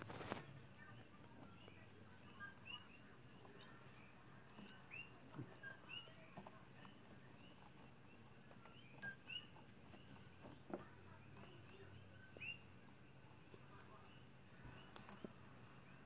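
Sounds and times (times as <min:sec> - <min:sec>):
faint short chirping calls: 0:01.5 - 0:10.4.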